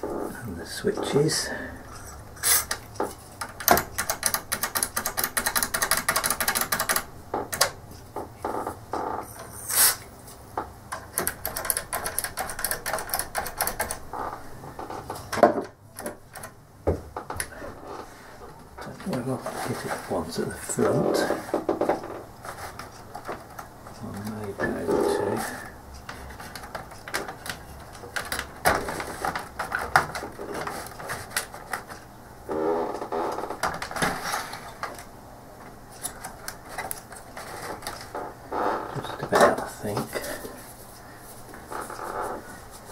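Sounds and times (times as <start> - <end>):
clicks and knocks of plastic parts: 2.7 - 8.6, 10.6 - 17.6, 20.8 - 24.8, 26.0 - 32.0, 33.0 - 38.3.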